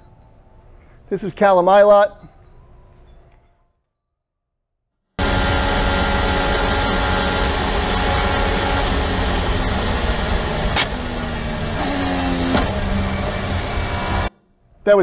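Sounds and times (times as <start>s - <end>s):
racing car engine: 5.2s - 14.3s
sharp crack: 8.2s - 13.0s.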